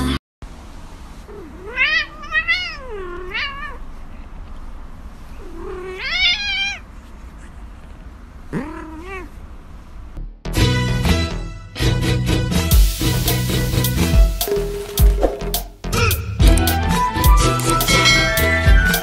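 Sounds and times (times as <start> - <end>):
cat meowing: 1.3 - 3.8, 5.4 - 6.9, 8.5 - 9.4.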